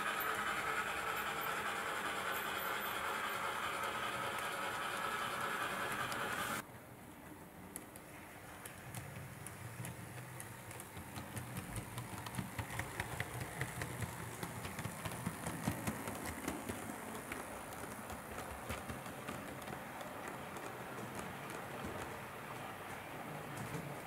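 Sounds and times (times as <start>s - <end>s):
model train humming: 0.0s - 6.6s, 8.0s - 24.0s
wheels clicking over rail joints: 7.2s - 24.0s.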